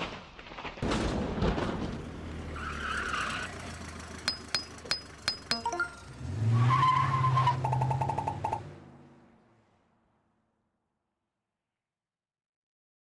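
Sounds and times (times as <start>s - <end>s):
sharp metallic clinks: 4.2s - 6.1s
vehicle engine revving: 5.9s - 9.2s.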